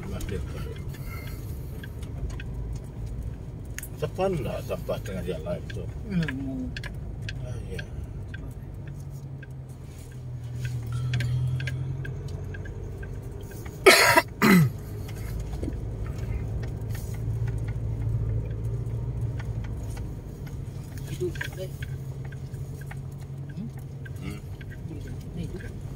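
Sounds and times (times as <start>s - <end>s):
car engine and road rumble: 0.0s - 25.9s
gravel ticks: 0.0s - 25.9s
person coughing: 13.9s - 14.8s.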